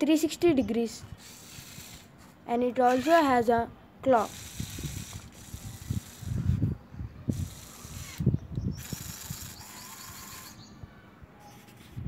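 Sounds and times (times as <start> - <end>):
small electric motors whirring: 1.1 - 3.2, 4.1 - 6.7, 7.3 - 10.7.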